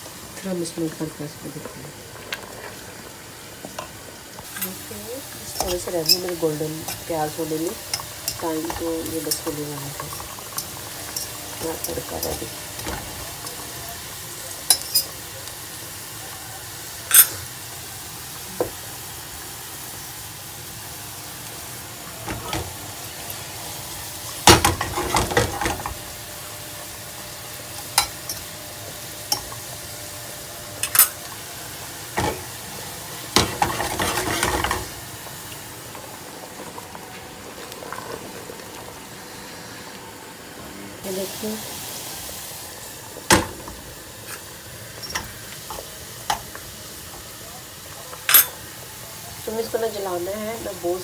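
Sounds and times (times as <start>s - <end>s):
onions sizzling in oil: 0.0s - 51.0s
clatter of pan: 33.4s - 34.9s.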